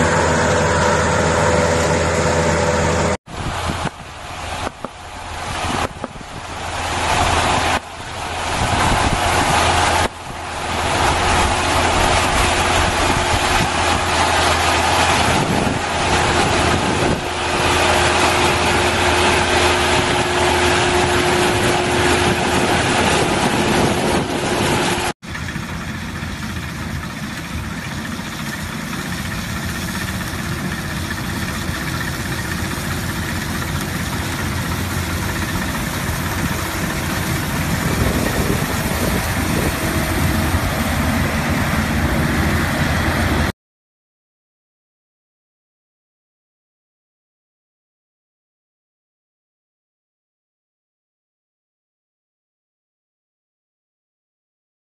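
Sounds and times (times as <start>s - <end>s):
combine harvester engine drone: 0.0s - 43.5s.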